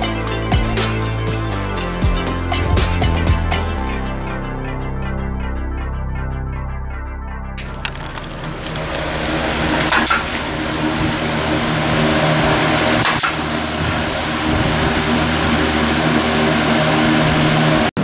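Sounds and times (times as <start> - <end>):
drum fan whirring: 0.0 - 3.8, 7.6 - 18.0.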